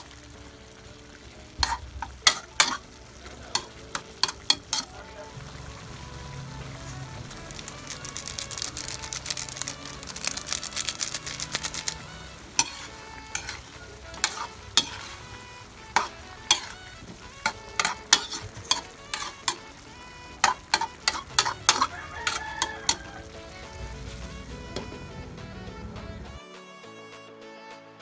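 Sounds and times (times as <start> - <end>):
low sizzle: 0.0 - 26.4
utensil scraping a wok: 1.5 - 5.3, 6.9 - 25.1.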